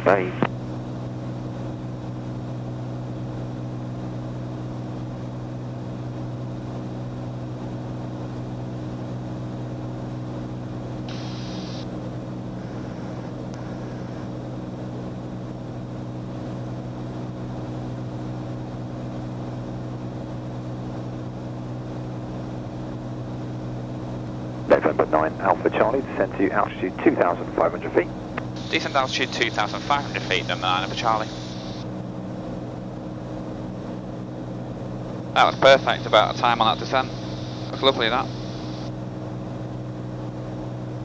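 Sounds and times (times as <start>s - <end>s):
aircraft engine and propeller drone: 0.0s - 41.0s.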